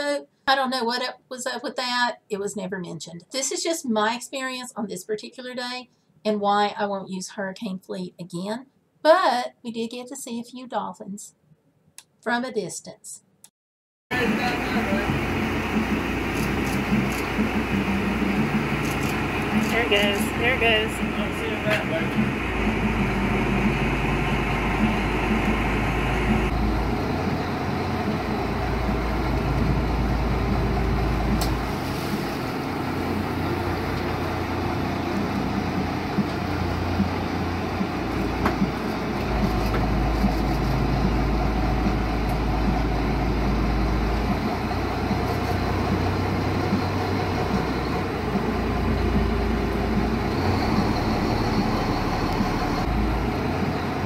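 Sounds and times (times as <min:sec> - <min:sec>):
boat engine running: 0:14.1 - 0:54.0.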